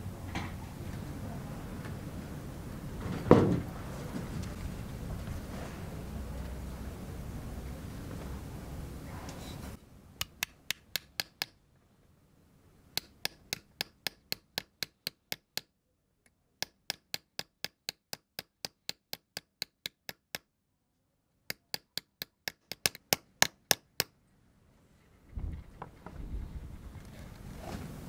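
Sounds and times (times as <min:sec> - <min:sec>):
hammer tapping metal punch: 0:13.0 - 0:15.7.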